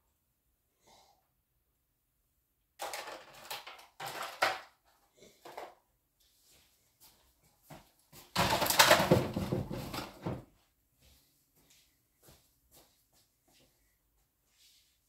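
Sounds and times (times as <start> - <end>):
packaging rustling and knocking: 8.2 - 10.5.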